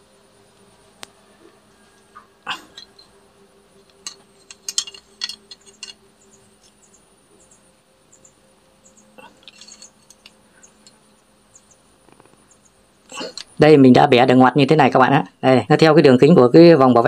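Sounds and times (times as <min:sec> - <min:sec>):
faint steady hum: 0:00.0 - 0:17.0
pliers clicking on metal: 0:02.6 - 0:03.1, 0:03.8 - 0:06.0.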